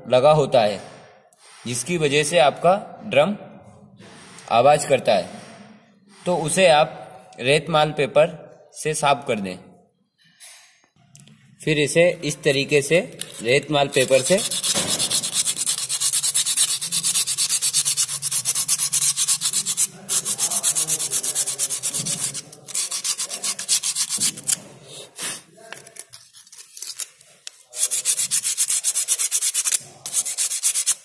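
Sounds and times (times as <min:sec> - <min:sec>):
sandpaper scrubbing metal: 0:13.3 - 0:25.4, 0:27.7 - 0:31.0.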